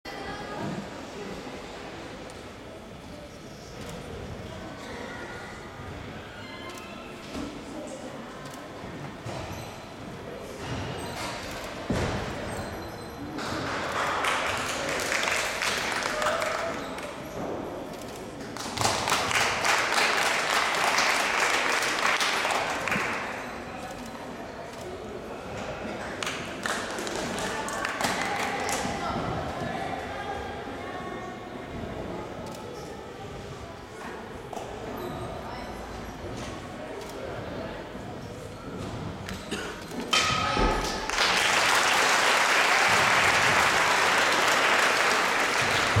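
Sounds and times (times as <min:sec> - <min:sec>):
spectators clapping: 0:13.4 - 0:17.2, 0:18.4 - 0:23.4, 0:26.2 - 0:28.9, 0:40.8 - 0:46.0
audience applauding: 0:13.7 - 0:17.1, 0:18.6 - 0:23.2, 0:40.8 - 0:46.0.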